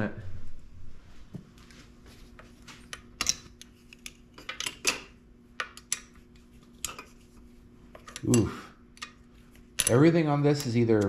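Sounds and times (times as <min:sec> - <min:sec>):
hand tools clinking on metal parts: 0:08.0 - 0:08.6, 0:09.8 - 0:11.0.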